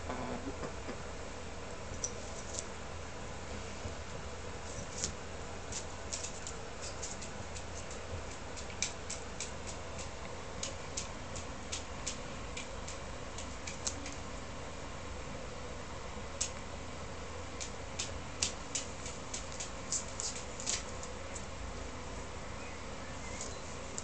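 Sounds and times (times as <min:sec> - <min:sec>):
compost grains ticking on tiles: 0:04.9 - 0:14.4, 0:17.5 - 0:21.7.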